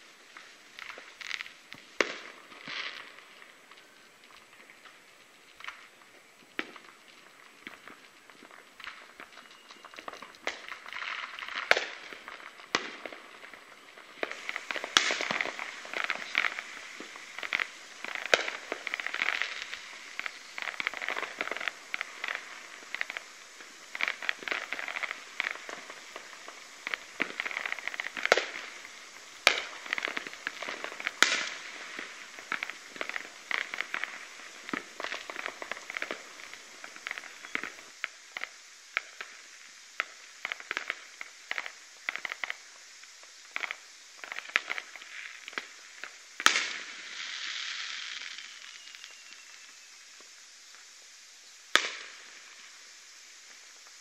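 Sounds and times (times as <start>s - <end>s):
firecrackers crackling and popping: 0.0s - 54.0s
loud firework bangs: 10.0s - 37.9s.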